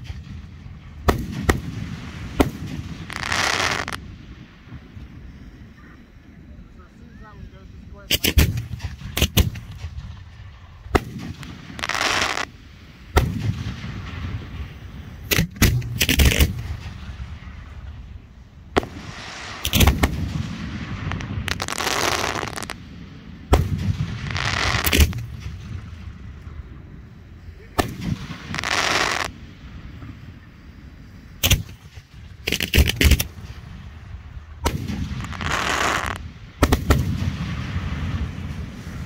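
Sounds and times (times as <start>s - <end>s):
firework shells bursting: 0.0s - 4.0s, 8.1s - 18.0s, 18.6s - 22.9s, 23.5s - 26.1s, 27.8s - 29.3s, 31.4s - 33.7s, 34.6s - 38.7s
firework crackle: 0.0s - 39.0s.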